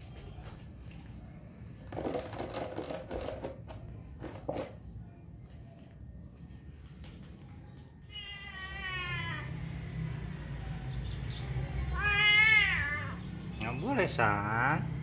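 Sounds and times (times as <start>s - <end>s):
cat meowing: 8.0s - 9.6s, 11.9s - 13.2s.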